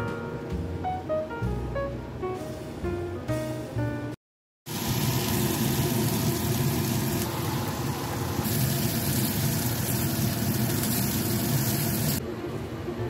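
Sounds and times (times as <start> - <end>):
bacon sizzling in frying pan: 4.7 - 12.2.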